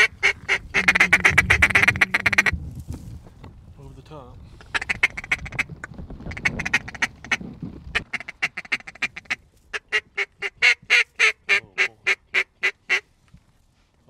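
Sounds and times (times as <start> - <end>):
duck call quacks: 0.0 - 2.5, 8.0 - 13.0.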